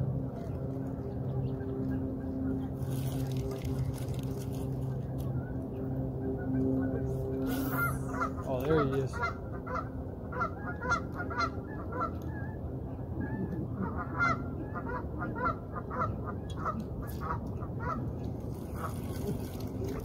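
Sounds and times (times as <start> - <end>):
waterfowl calling: 7.6 - 12.2.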